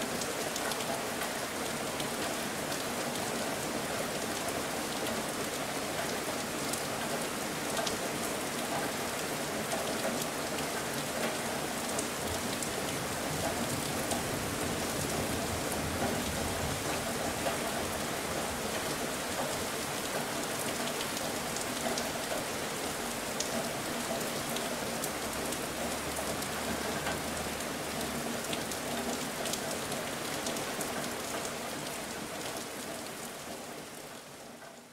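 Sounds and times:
steady rain falling: 0:00.0 - 0:34.9
raindrop ticks: 0:06.0 - 0:09.0, 0:23.3 - 0:33.1.

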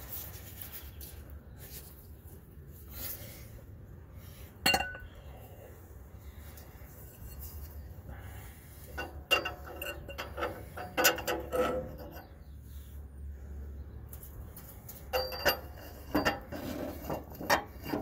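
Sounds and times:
ratchet clinking on metal: 0:09.0 - 0:12.2, 0:14.9 - 0:18.0.

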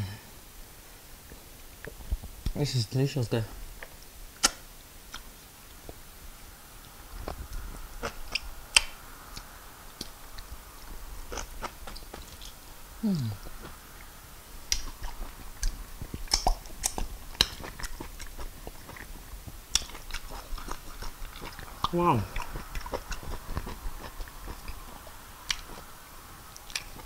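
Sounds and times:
chewing and wet lip-smacking: 0:06.8 - 0:12.6, 0:14.6 - 0:27.0.

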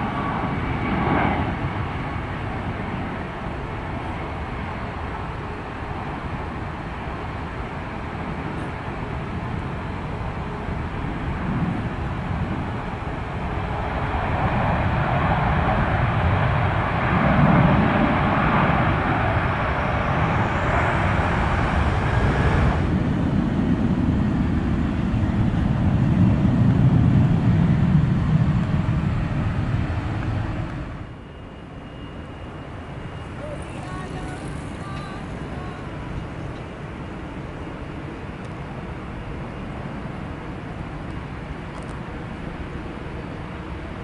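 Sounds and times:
jet engine hiss: 0:00.0 - 0:31.2, 0:32.1 - 0:37.2
jet engine rumble: 0:00.0 - 0:44.0.

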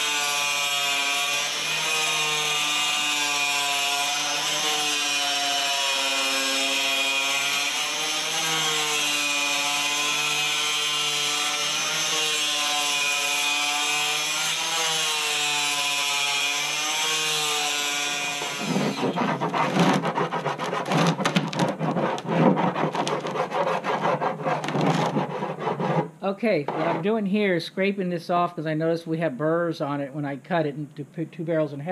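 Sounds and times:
circular saw cutting plastic: 0:00.0 - 0:27.2
hand scraper shaving plastic: 0:16.6 - 0:27.2.

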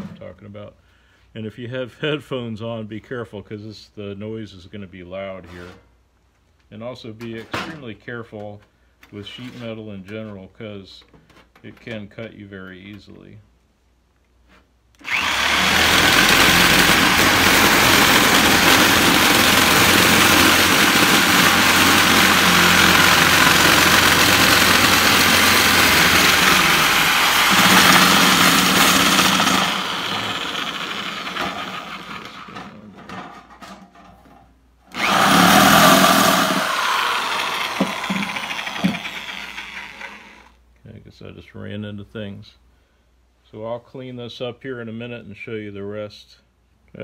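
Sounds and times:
electric shears cutting sheet metal: 0:15.0 - 0:32.6, 0:35.0 - 0:40.5.

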